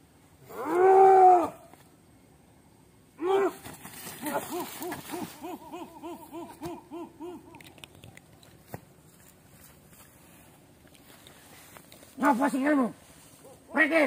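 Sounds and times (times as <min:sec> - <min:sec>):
hooting calls: 0:04.2 - 0:07.9.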